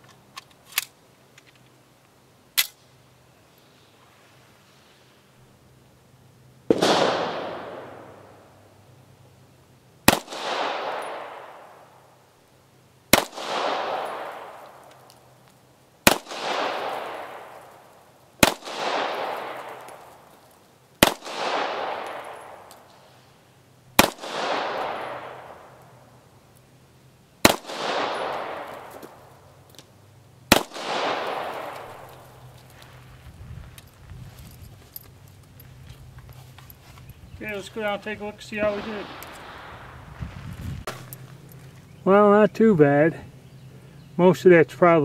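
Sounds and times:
pistol shots with echo: 6.7s - 8.5s, 10.0s - 12.0s, 13.1s - 14.9s, 16.0s - 17.8s, 18.4s - 20.2s, 21.0s - 22.8s, 24.0s - 25.9s, 27.4s - 29.3s, 30.5s - 32.4s, 38.5s - 40.1s.

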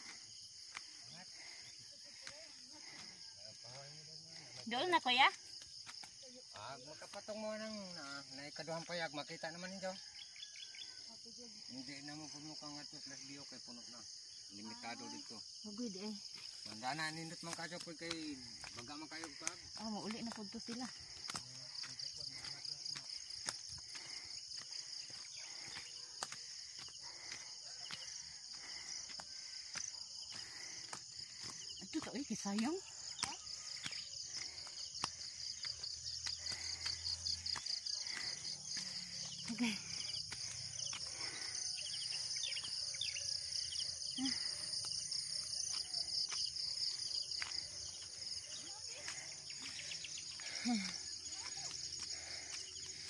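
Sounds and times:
insects chorus: 0.0s - 53.0s.

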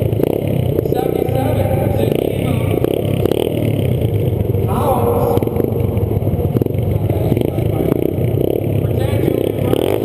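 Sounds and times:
dirt bike engines revving: 0.0s - 10.0s.

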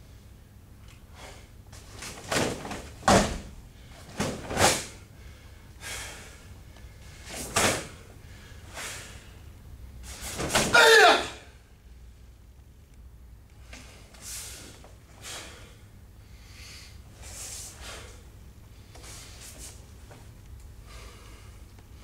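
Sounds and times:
person shouting: 10.6s - 11.5s.

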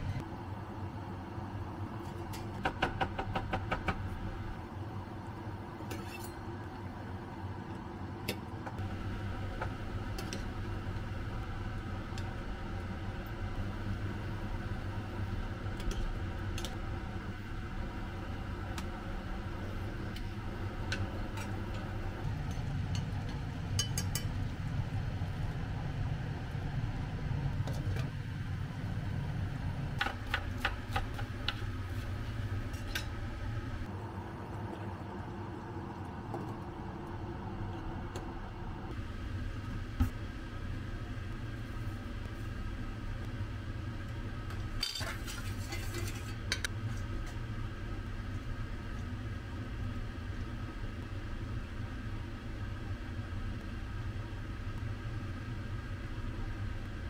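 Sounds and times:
kitchen fan humming: 0.0s - 57.0s
spoon clinking against saucepan: 23.8s - 24.3s.

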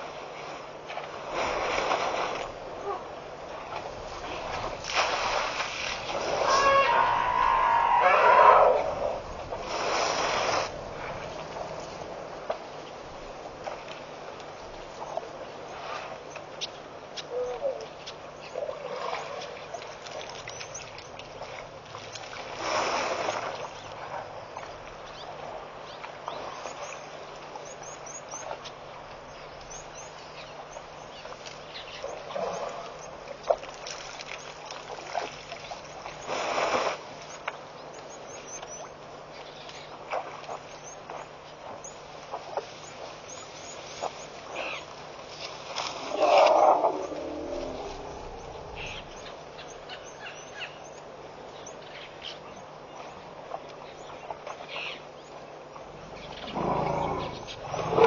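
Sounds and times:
steady outdoor hiss: 0.0s - 58.0s
water splashing from trunk: 3.7s - 6.5s.

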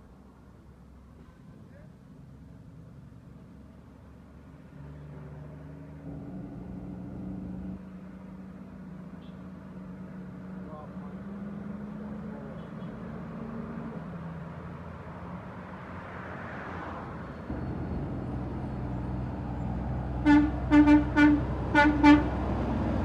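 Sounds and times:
truck diesel engine: 4.7s - 15.7s, 17.0s - 23.0s
truck horn toots: 20.2s - 22.4s.

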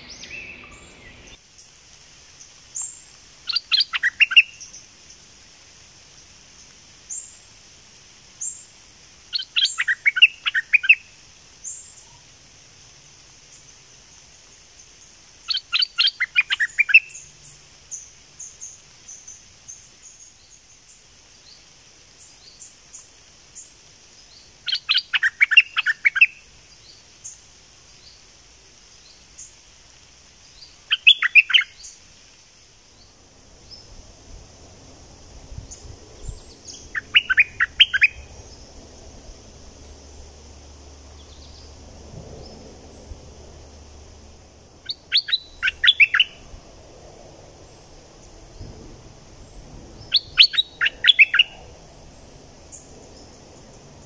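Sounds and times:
bird warbling song: 0.0s - 1.4s, 2.8s - 4.8s, 9.3s - 11.0s, 15.5s - 17.3s, 24.3s - 27.4s, 30.6s - 32.0s, 35.6s - 39.1s, 42.4s - 47.0s, 47.7s - 53.9s
steady high hiss: 0.0s - 54.0s.

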